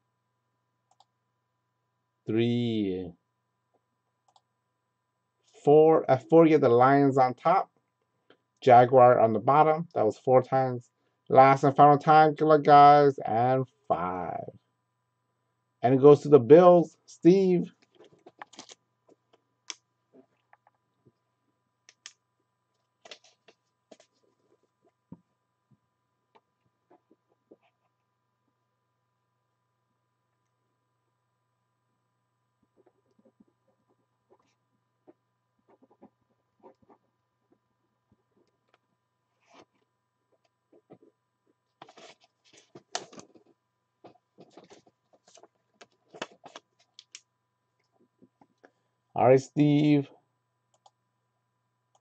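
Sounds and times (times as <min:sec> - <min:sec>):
faint clicks and taps: 0:17.7 - 0:21.2, 0:21.8 - 0:27.9, 0:39.5 - 0:48.8.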